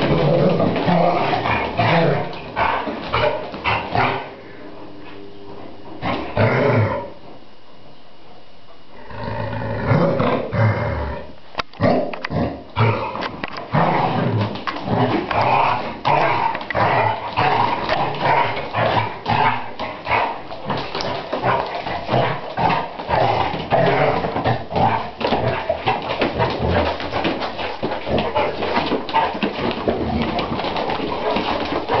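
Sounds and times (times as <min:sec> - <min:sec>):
dogs vocalising in play: 0:00.0 - 0:04.4, 0:12.0 - 0:32.0
claws clicking on floor: 0:13.2 - 0:32.0.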